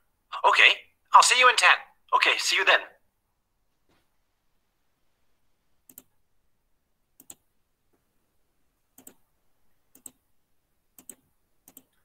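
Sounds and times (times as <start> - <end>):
computer mouse clicks: 5.9 - 6.1, 7.2 - 7.4, 9.0 - 9.2, 9.9 - 10.2, 11.0 - 12.0.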